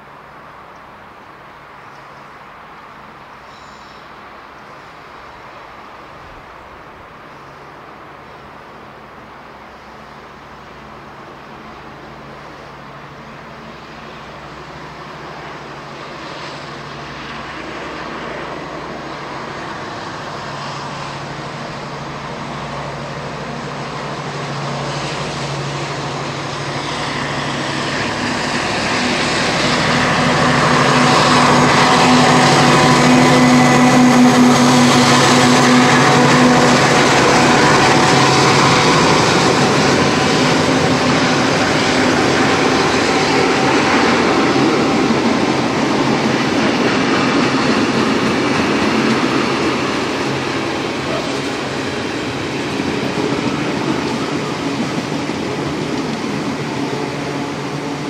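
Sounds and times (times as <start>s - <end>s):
diesel locomotive engine drone: 0.0s - 58.0s.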